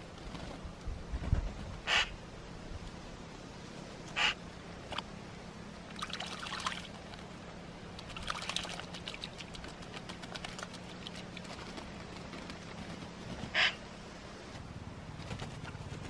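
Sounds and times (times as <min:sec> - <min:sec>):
bird splashing in water: 0:05.8 - 0:13.8.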